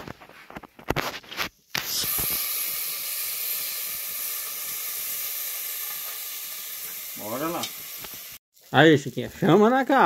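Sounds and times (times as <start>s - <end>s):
fish sizzling in oil: 1.5s - 10.0s.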